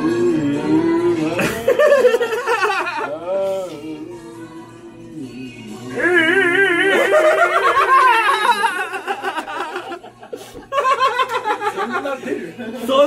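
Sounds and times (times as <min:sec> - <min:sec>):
man singing with heavy vibrato: 0:00.0 - 0:09.2
laughter: 0:01.4 - 0:03.1, 0:06.9 - 0:12.8.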